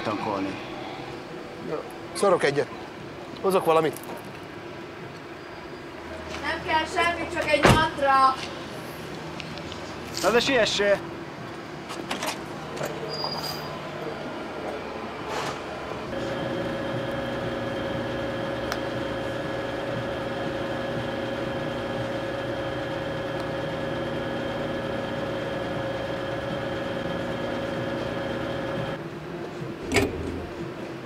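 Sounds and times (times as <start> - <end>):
fuel pump humming: 16.1 - 29.0.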